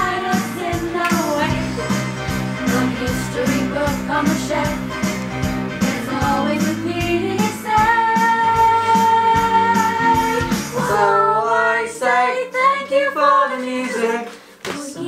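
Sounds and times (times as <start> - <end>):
woman singing pop song: 0.0 - 1.9, 2.6 - 5.0, 5.8 - 11.3, 12.5 - 15.0
backing music: 0.0 - 14.2.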